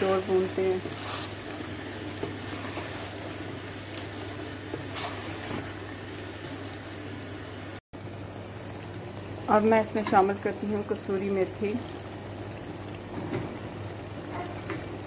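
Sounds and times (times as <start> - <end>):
food frying and bubbling: 0.0 - 15.0
wooden spoon scraping pot: 0.1 - 3.3, 4.1 - 5.8.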